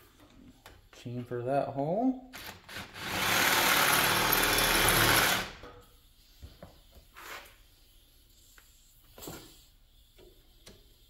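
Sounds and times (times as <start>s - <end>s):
electric drill drilling: 2.4s - 5.6s.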